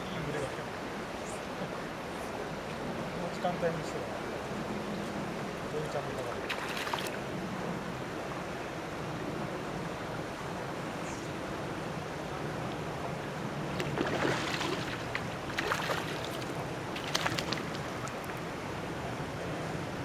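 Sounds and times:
fish splashing at water surface: 6.4 - 7.2, 13.8 - 18.4.

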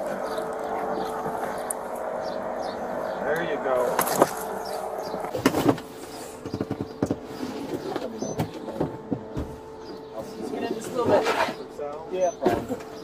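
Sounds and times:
steady hum: 0.0 - 13.0
knocks and clunks on plastic seat: 5.3 - 10.0.

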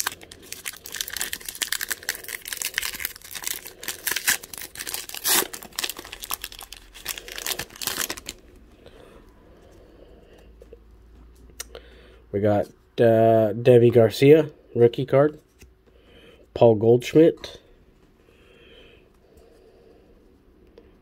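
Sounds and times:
wrapper tearing and crinkling: 0.0 - 8.5.

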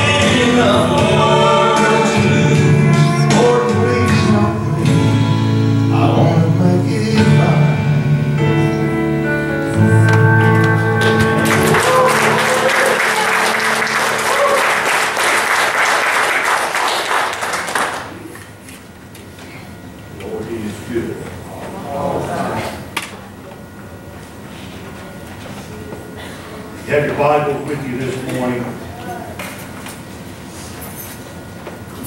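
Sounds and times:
man singing gospel song: 0.0 - 8.2
musical accompaniment: 0.0 - 16.6
congregation applauding: 9.8 - 18.6.

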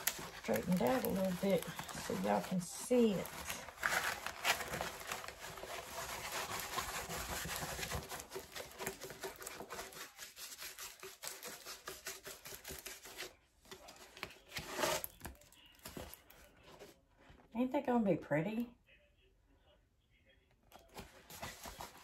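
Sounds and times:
canvas and plastic crinkling: 0.0 - 9.3.

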